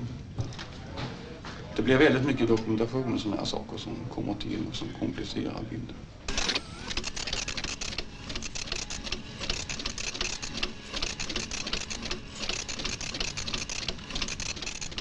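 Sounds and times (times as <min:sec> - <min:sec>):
impact printer chatter: 0:06.3 - 0:15.0.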